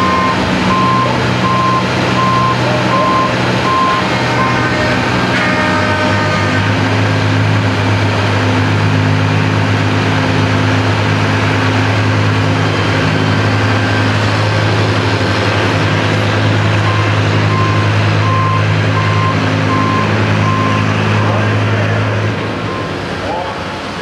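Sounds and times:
short repeating beep: 0:00.0 - 0:04.6, 0:16.9 - 0:20.8
tractor engine running under load: 0:00.0 - 0:24.0.

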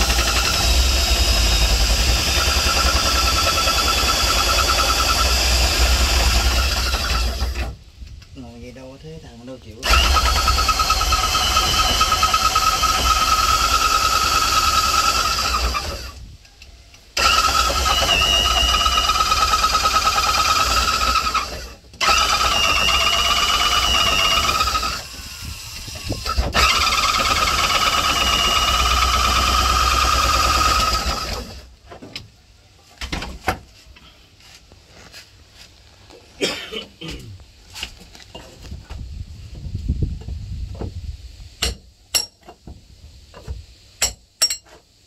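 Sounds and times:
motor-driven machine whining: 0:09.8 - 0:16.2, 0:17.2 - 0:31.7.

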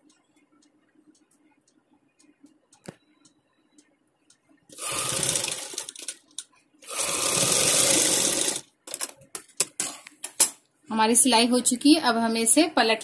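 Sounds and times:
sewing machine stitching: 0:04.8 - 0:06.2, 0:06.8 - 0:08.7.

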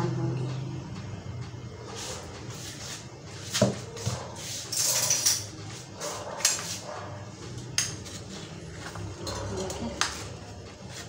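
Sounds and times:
metal dishes clinking: 0:04.7 - 0:05.6.

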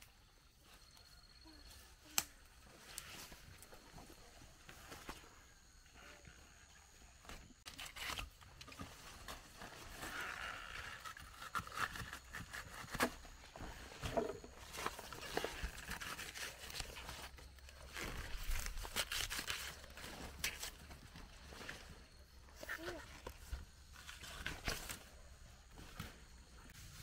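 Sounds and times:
stalks snapping and tearing: 0:07.7 - 0:08.4, 0:10.8 - 0:13.2, 0:18.0 - 0:20.8
large leaves rustling: 0:13.4 - 0:27.0.

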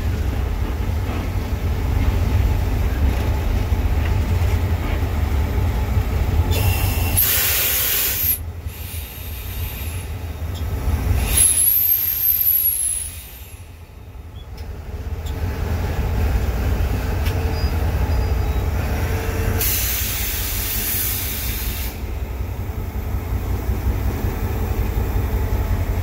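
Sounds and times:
diesel engine rumbling: 0:00.0 - 0:26.0
air hiss burst: 0:06.6 - 0:10.1, 0:19.6 - 0:22.1.

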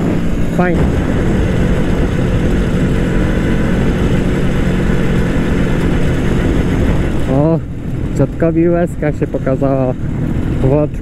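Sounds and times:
rushing air noise: 0:00.0 - 0:11.0
two-stroke motorcycle engine running: 0:00.0 - 0:11.0.

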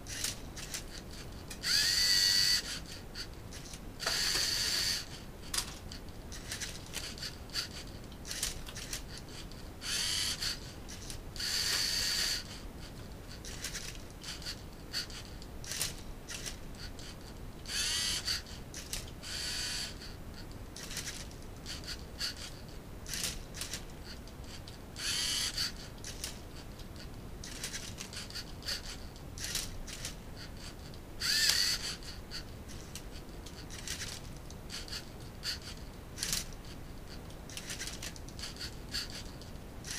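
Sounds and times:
servo motors whirring: 0:01.5 - 0:12.6, 0:13.4 - 0:20.2, 0:25.0 - 0:26.4, 0:27.4 - 0:32.4
small plastic clicks: 0:37.5 - 0:39.9.

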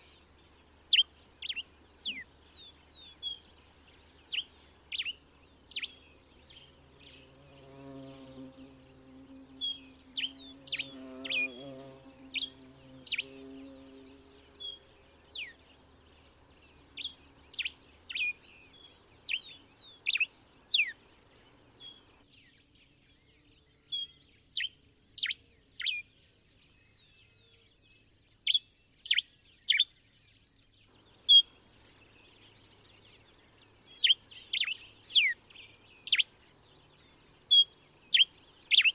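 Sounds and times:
finch singing whistled notes: 0:28.3 - 0:38.9.

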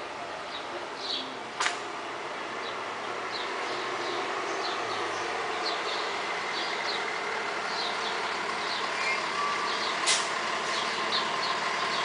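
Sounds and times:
street traffic drone: 0:00.0 - 0:12.0
bird chirping: 0:07.7 - 0:10.0
sharp hiss: 0:10.0 - 0:10.4.

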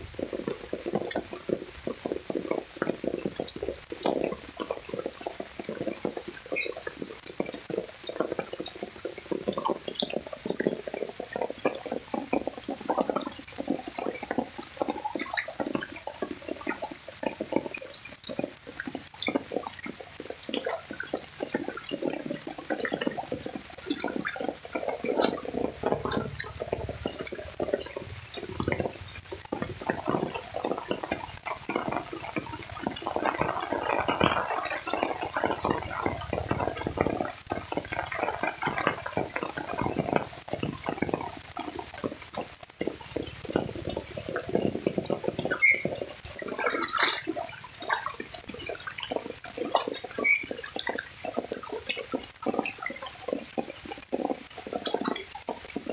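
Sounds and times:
rain on foliage and puddles: 0:00.0 - 0:55.9
footsteps splashing through water: 0:45.0 - 0:51.4.

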